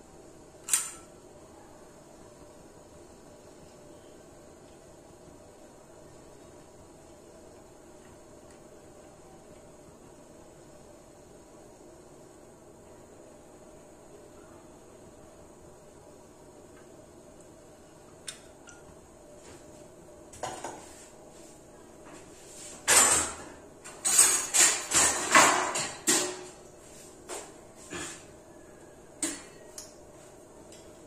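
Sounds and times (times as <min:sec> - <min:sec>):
metal utensils and pots clattering: 0:22.8 - 0:26.5.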